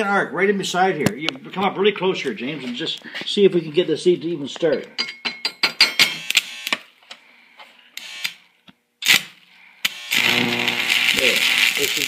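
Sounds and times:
welding arc crackling and sputtering: 6.2 - 6.9, 9.0 - 12.0
steady crackling arc hiss: 9.0 - 12.0.

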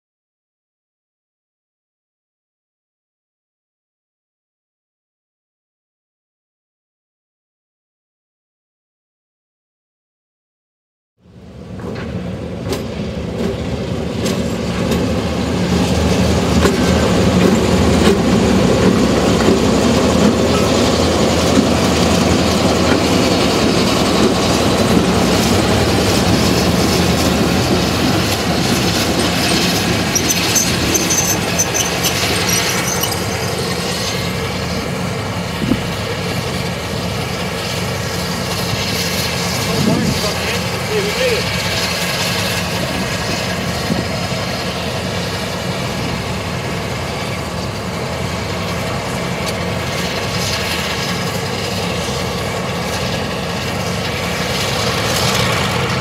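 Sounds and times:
diesel locomotive engines running: 11.2 - 56.0
wheels rumbling on rails: 11.2 - 56.0
high wheel squeal: 26.1 - 35.0.

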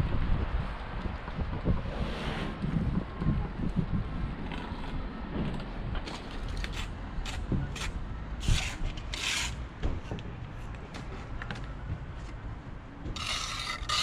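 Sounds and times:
trowel scraping mortar on stone: 6.4 - 9.6, 13.1 - 14.0.

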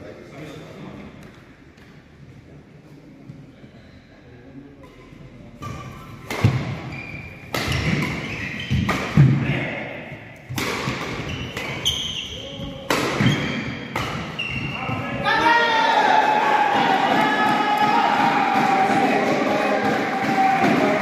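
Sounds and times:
rackets striking shuttlecock: 7.5 - 9.4, 10.4 - 12.0, 12.8 - 14.6
players' voices: 11.8 - 21.0.

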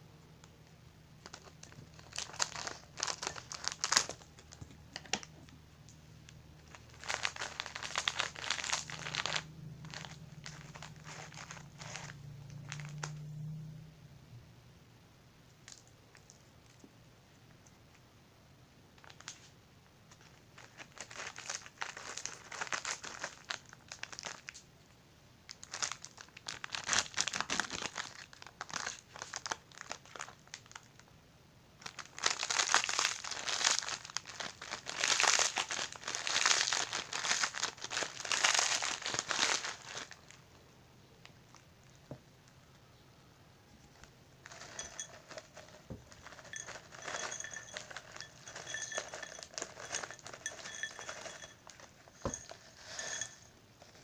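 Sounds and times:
crackers crushed in plastic wrapper: 1.2 - 5.3, 6.6 - 13.3, 20.1 - 24.6, 25.5 - 31.0, 31.8 - 40.5, 43.9 - 53.2
crumbs rattling into a glass: 6.7 - 13.2, 44.4 - 54.0.

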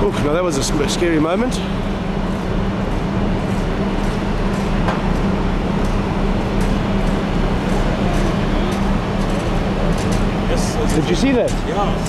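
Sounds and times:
ship machinery drone: 0.0 - 12.0.

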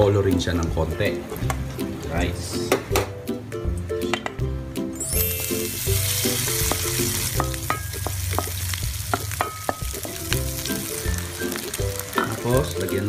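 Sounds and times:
rice sizzling in oil: 5.0 - 13.0
utensil scraping against wok: 5.2 - 13.0.

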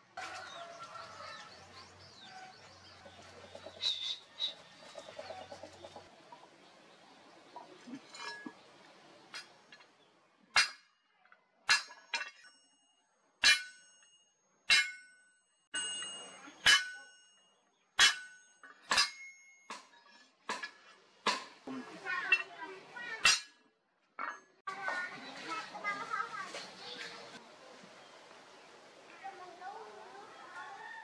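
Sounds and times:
steel blade ringing: 11.7 - 19.9.

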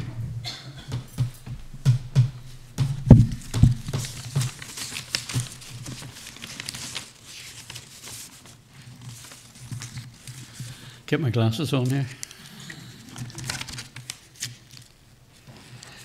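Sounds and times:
loud thumps: 0.0 - 4.6
footsteps and knocks: 0.0 - 6.4
papers rustling: 2.2 - 11.0, 13.0 - 16.0.

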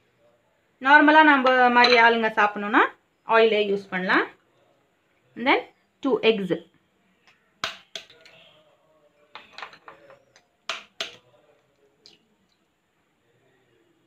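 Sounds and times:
knife cracking egg shells: 7.6 - 8.2, 10.7 - 11.2.

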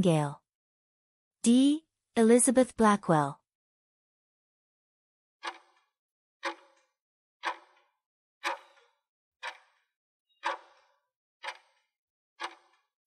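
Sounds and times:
timer ticking: 5.4 - 5.8, 6.4 - 6.8, 7.4 - 11.8, 12.4 - 12.9.

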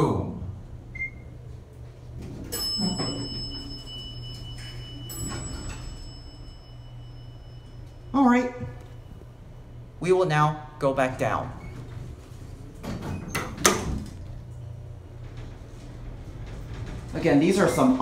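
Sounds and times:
steady low hum: 0.0 - 18.0
elevator bell chime: 2.4 - 9.8.

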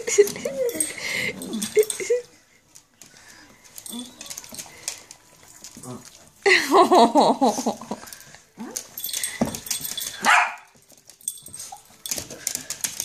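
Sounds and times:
dog barking: 10.2 - 10.7.

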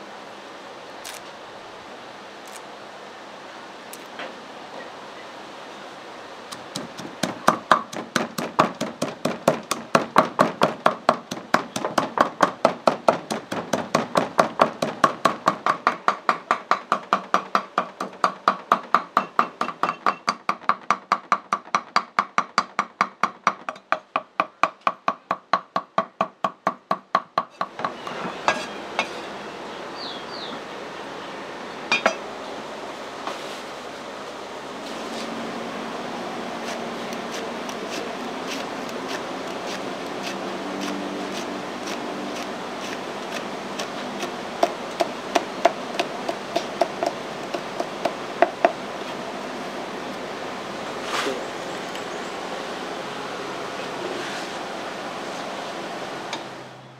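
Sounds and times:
rapid kitchen chopping strikes: 6.5 - 27.6, 37.2 - 48.8.

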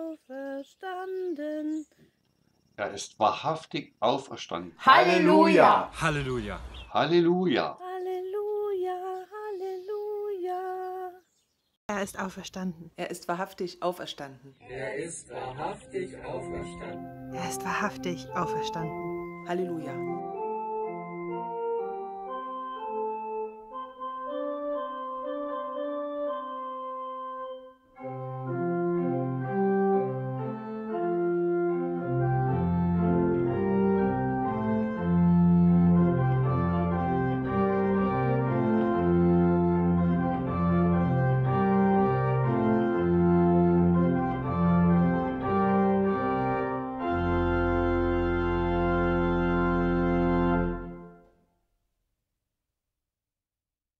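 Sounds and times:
organ music: 4.8 - 7.4, 15.2 - 51.3.

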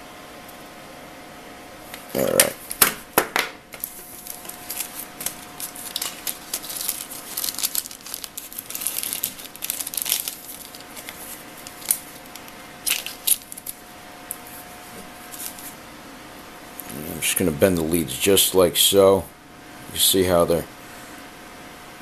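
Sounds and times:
plastic bag crinkling: 3.8 - 15.8.

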